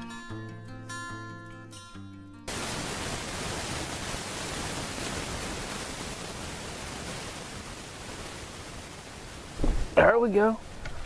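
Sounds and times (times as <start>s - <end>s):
acoustic guitar music: 0.0s - 2.5s
outdoor microphone hiss: 2.5s - 11.0s.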